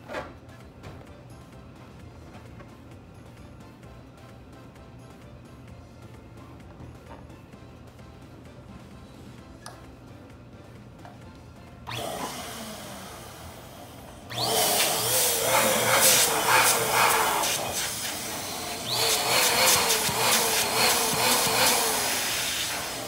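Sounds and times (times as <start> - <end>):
electric balloon pump whining: 11.8 - 23.0.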